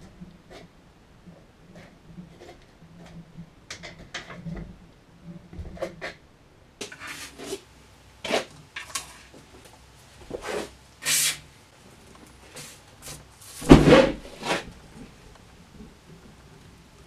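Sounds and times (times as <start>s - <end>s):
sharp hissing bursts: 9.9s - 11.8s.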